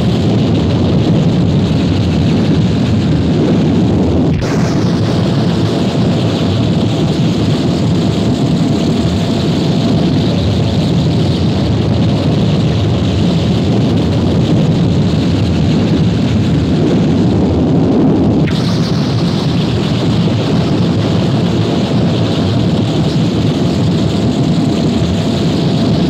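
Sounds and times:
harsh distorted noise music: 0:00.2 - 0:26.0.

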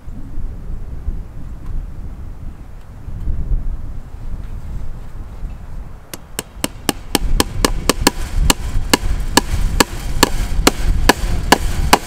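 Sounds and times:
wind rumble on microphone: 0:00.0 - 0:12.0
hammer striking fence staple: 0:06.1 - 0:12.0.

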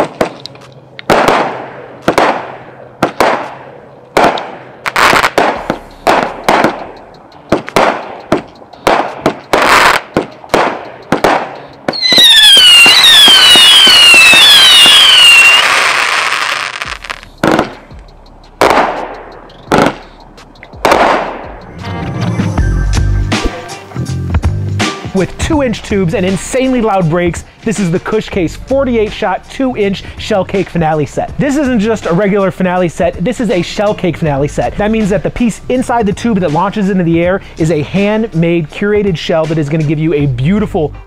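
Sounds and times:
fireworks cake bangs: 0:01.1 - 0:03.6, 0:04.2 - 0:06.9, 0:07.5 - 0:17.8, 0:20.8 - 0:21.6
falling firework whistles: 0:11.9 - 0:17.7.

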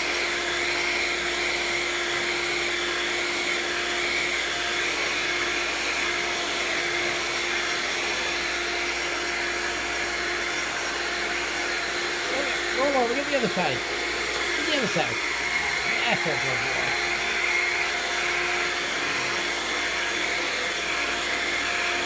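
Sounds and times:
vacuum cleaner running: 0:00.0 - 0:22.0.

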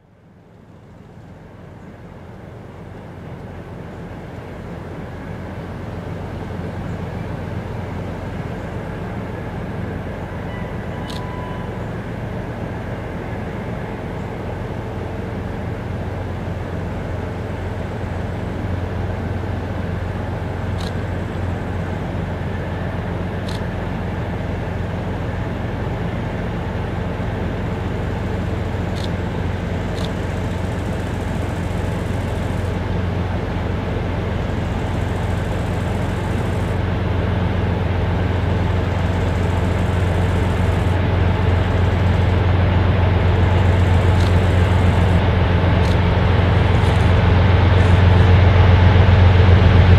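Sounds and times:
diesel locomotive engine drone: 0:00.0 - 0:49.9.

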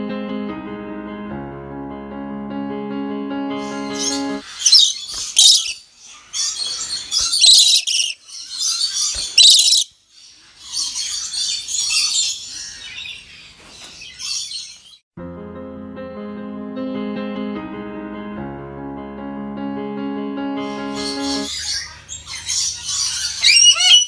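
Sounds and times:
parrots calling harshly: 0:03.9 - 0:09.9, 0:21.0 - 0:24.0.

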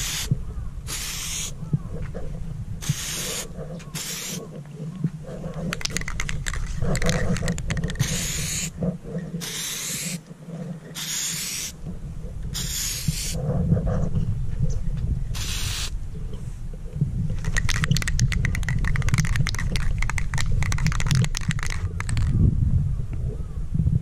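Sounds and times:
spray can hissing: 0:00.0 - 0:00.3, 0:00.9 - 0:01.6, 0:02.8 - 0:03.4, 0:04.0 - 0:04.4, 0:08.0 - 0:08.7, 0:09.4 - 0:10.2, 0:11.0 - 0:11.7, 0:12.6 - 0:13.4, 0:15.4 - 0:15.9
quick clicks: 0:05.7 - 0:08.7, 0:17.4 - 0:22.4.

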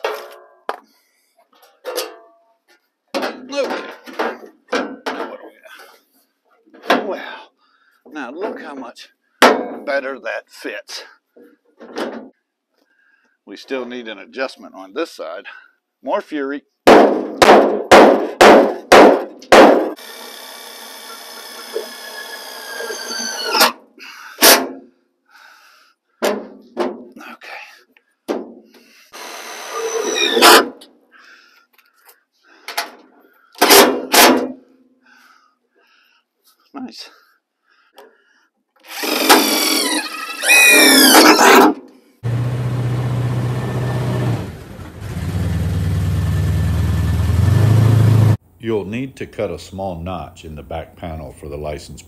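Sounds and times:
sharp knock: 0:16.9 - 0:20.0
cordless drill running: 0:20.0 - 0:23.5, 0:29.2 - 0:30.4, 0:38.8 - 0:41.1.

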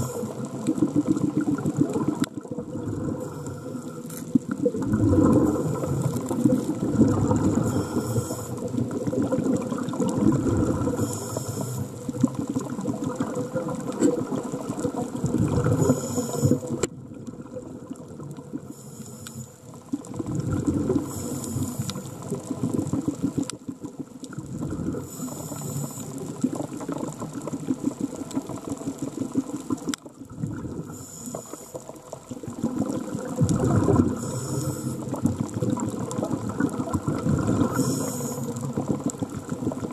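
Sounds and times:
regulator inhale hiss: 0:00.0 - 0:00.5, 0:03.2 - 0:04.2, 0:07.5 - 0:08.8, 0:10.9 - 0:12.1, 0:15.7 - 0:16.8, 0:18.6 - 0:19.8, 0:21.0 - 0:22.2, 0:25.0 - 0:26.3, 0:30.8 - 0:32.1, 0:34.0 - 0:35.2, 0:37.6 - 0:38.7
exhaled bubbles rushing: 0:00.0 - 0:18.7, 0:19.8 - 0:31.0, 0:32.0 - 0:39.9.

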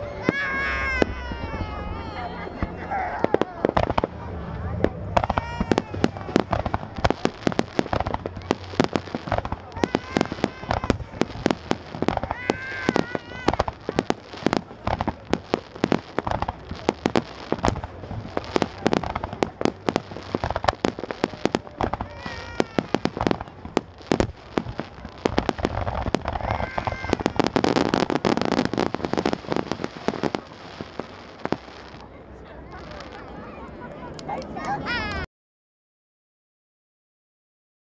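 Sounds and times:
crackling firework pops: 0:02.6 - 0:32.1
firework shells bursting: 0:05.1 - 0:32.0.

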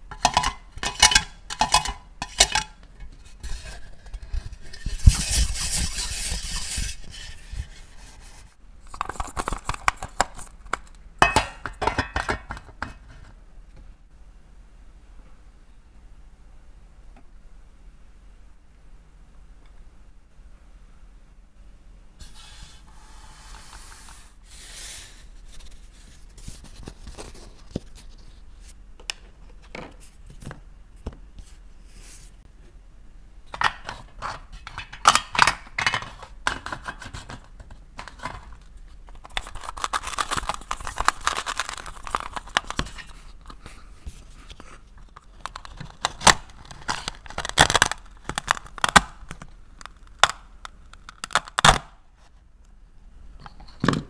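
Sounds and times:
scraping and tearing noise: 0:00.9 - 0:11.0, 0:33.8 - 0:52.3.

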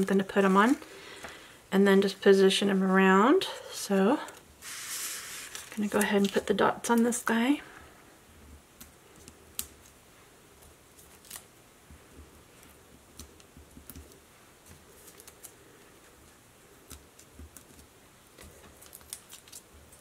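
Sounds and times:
paper clicks and rustles: 0:04.6 - 0:06.5.

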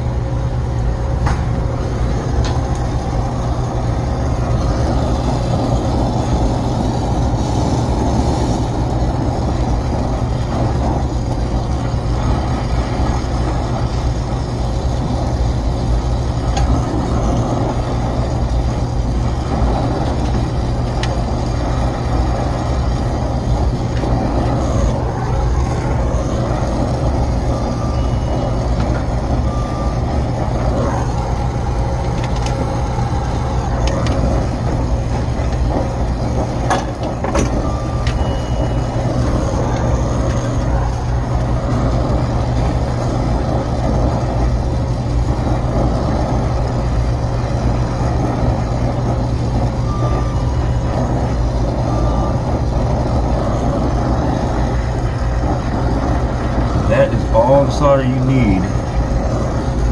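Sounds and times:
gas torch hissing: 0:00.0 - 0:59.9
low machinery rumble: 0:00.0 - 0:59.9
short beeps: 0:27.5 - 0:30.1, 0:37.5 - 0:40.0, 0:49.9 - 0:51.0.

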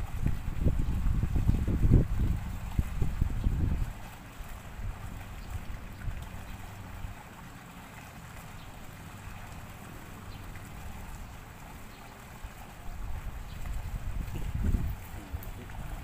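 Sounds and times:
wind rumbling on microphone: 0:00.0 - 0:07.2, 0:12.5 - 0:16.0.

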